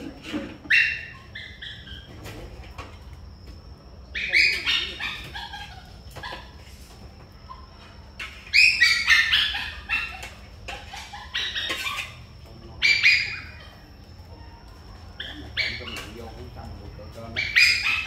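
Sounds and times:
animal calls: 0.0 - 2.8, 4.1 - 6.7, 7.4 - 18.0.

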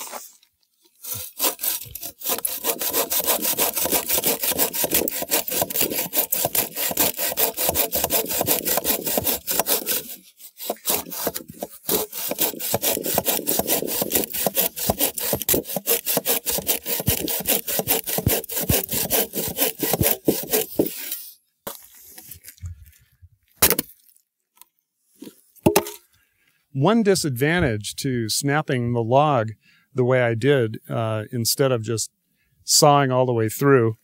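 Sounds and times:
hand saw cutting a log: 1.0 - 21.3.

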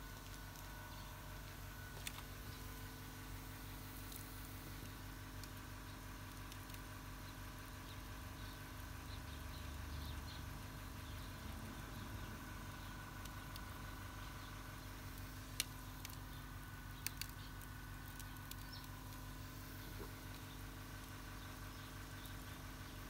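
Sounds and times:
sharp clicks: 15.1 - 21.1.

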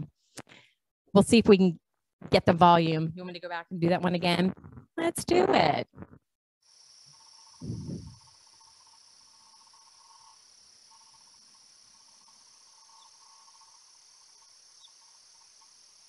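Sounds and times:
insects lower pulsing trill: 6.6 - 16.0
night insects high trill: 6.7 - 16.0.

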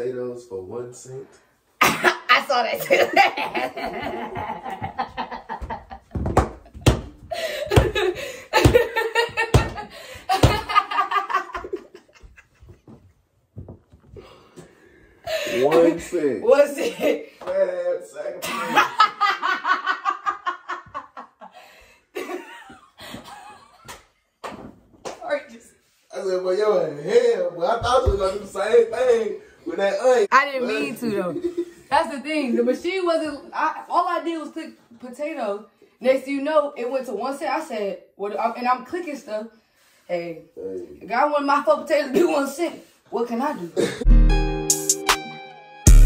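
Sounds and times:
man and woman laughing: 2.8 - 12.8, 18.4 - 21.5, 22.2 - 23.8.

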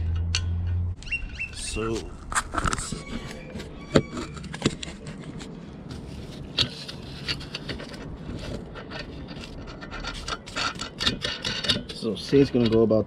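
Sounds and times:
low background rumble: 0.0 - 13.0
metal nut clicking and scraping: 0.0 - 13.0.

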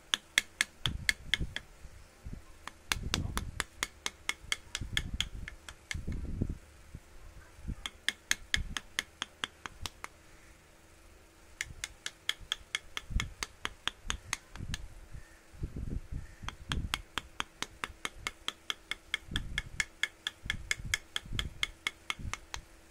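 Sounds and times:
faint steady hum: 0.0 - 22.9
hammer tapping on chisel: 0.1 - 1.7, 2.6 - 6.2, 7.8 - 10.2, 11.6 - 14.9, 16.4 - 22.7.

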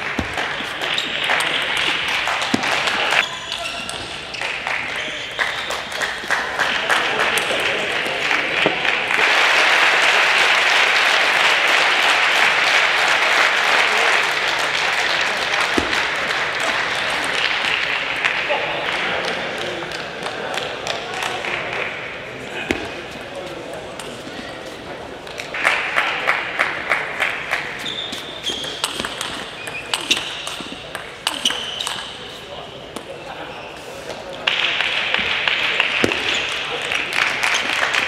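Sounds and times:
spectators applauding: 0.0 - 3.6, 4.3 - 22.0, 25.5 - 27.8, 34.5 - 38.0
table tennis ball bouncing: 0.0 - 4.2, 15.7 - 16.2, 28.4 - 32.2
ball hitting bat and table: 0.0 - 4.3, 15.6 - 17.9, 22.6 - 23.2, 27.5 - 32.3, 35.9 - 36.6
shoes squeaking on floor: 0.0 - 5.8, 27.7 - 32.5.

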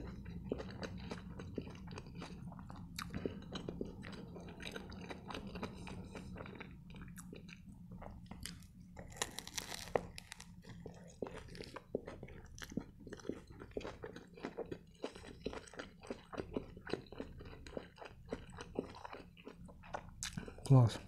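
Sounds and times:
close chewing with mouth clicks: 0.0 - 21.0
crunchy bite into wrap: 8.4 - 12.9.

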